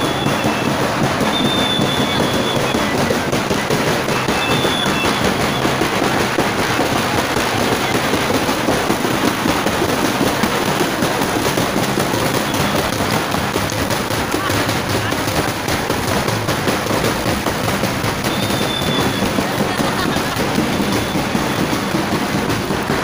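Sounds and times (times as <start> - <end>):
parade drums beating: 0.0 - 23.0.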